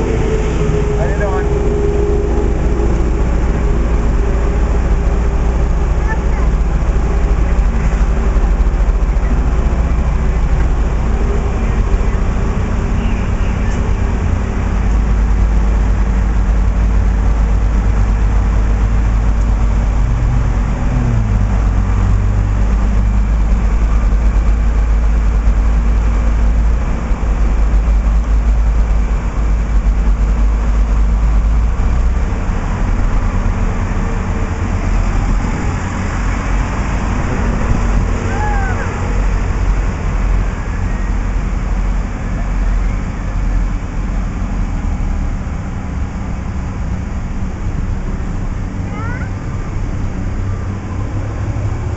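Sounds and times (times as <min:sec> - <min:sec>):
traffic engines rumbling: 0:00.0 - 0:51.9.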